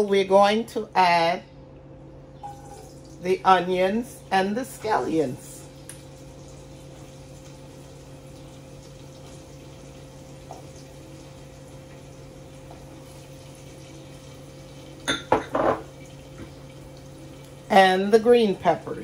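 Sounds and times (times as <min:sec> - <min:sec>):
faint hum: 0:00.0 - 0:19.0
onions sizzling in oil: 0:05.1 - 0:15.0.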